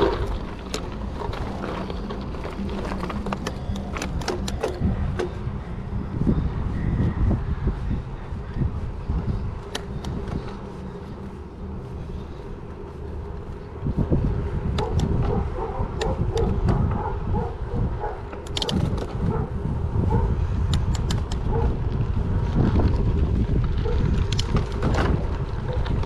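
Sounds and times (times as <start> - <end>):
bicycle clicks and rattles: 0.0 - 6.2, 8.3 - 26.0
tyres rolling on asphalt: 0.0 - 26.0
wind noise on microphone: 0.0 - 26.0.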